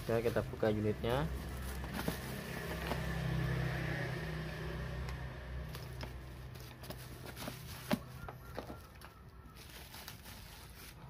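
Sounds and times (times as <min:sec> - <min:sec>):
hands handling parts in plastic case: 0:01.6 - 0:03.0, 0:05.7 - 0:11.0.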